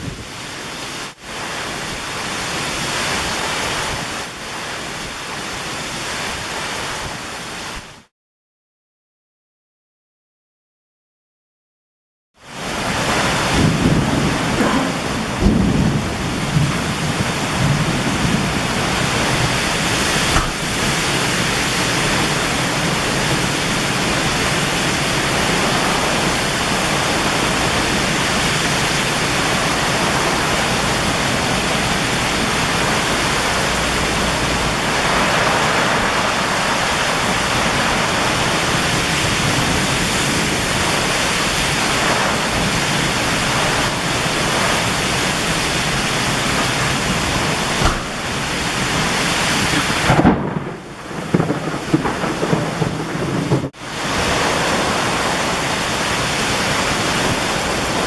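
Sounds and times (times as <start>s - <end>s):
heavy rain and wind rushing: 0.0s - 8.1s, 12.4s - 58.0s
low rumble of thunder: 13.0s - 28.6s, 46.8s - 55.6s.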